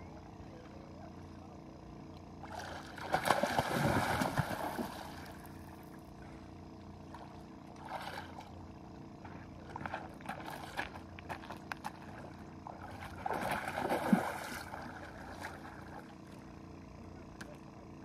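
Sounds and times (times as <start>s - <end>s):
fish splashing in water: 2.5s - 5.5s, 11.9s - 16.1s.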